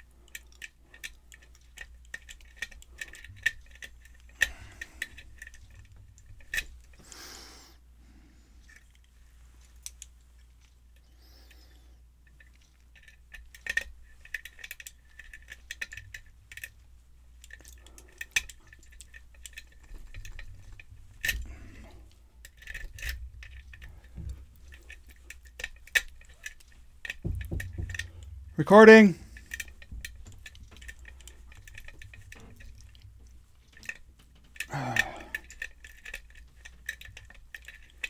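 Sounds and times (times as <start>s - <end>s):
lock pick scraping and clicking: 0.3s - 7.1s, 12.2s - 16.8s, 17.4s - 28.6s, 29.2s - 38.0s.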